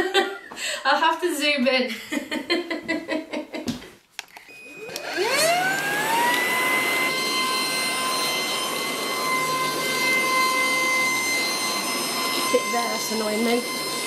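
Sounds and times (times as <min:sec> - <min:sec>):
vacuum cleaner motor whine: 0:04.5 - 0:14.0.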